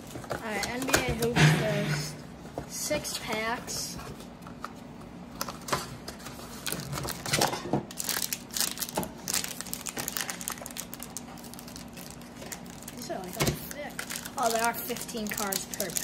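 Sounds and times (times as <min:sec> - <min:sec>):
foil card packs crinkling: 0:05.4 - 0:16.0.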